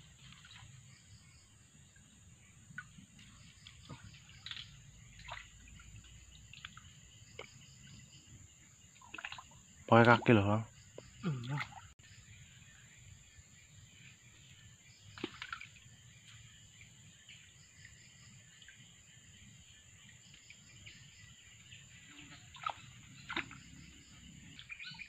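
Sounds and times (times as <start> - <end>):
water splashes: 0.0 - 1.1, 2.4 - 12.0, 15.0 - 25.0
birds chirping: 0.0 - 25.0
insects chirping: 0.0 - 25.0.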